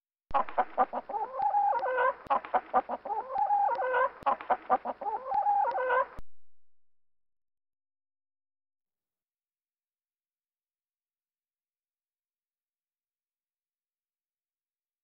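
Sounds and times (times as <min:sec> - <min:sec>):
hen clucking and cackling: 0:00.3 - 0:06.2.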